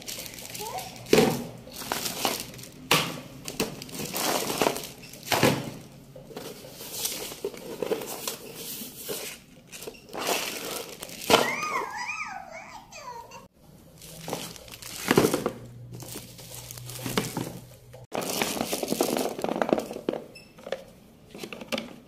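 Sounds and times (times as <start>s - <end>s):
plastic bags crinkling: 0.0s - 12.1s, 13.8s - 20.2s
young child vocalizing: 11.4s - 13.5s
paper rustling: 13.9s - 19.4s.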